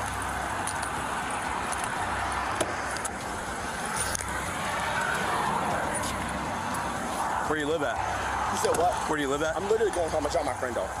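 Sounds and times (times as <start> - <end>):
gear clicking and rustling: 0.0 - 7.2
traffic and engine noise: 0.0 - 11.0.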